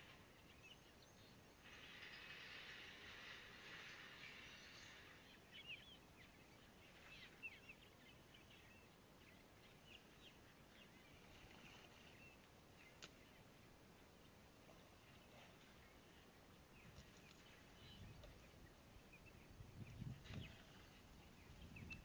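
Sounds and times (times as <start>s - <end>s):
faint high hiss: 0.0s - 21.7s
bird chirps: 4.2s - 13.0s.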